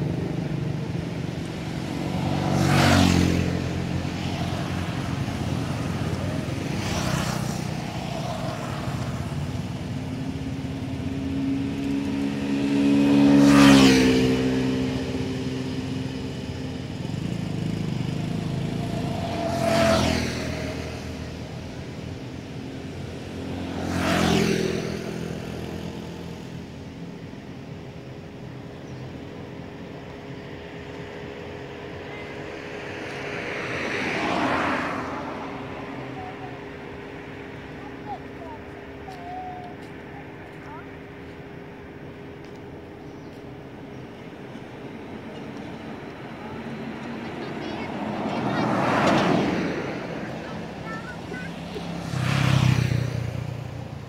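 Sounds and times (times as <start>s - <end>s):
steady engine hum: 0.0s - 54.0s
vehicles driving past: 0.0s - 54.0s.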